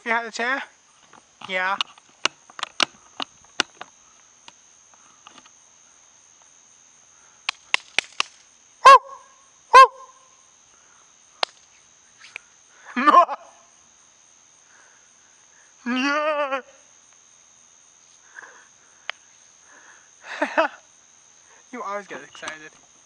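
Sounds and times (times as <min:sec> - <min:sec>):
crickets trilling: 0:00.0 - 0:23.0
sharp clicks: 0:07.4 - 0:08.5
voice-like call: 0:08.8 - 0:10.2
loud short pitched calls: 0:08.8 - 0:10.4, 0:11.8 - 0:13.2.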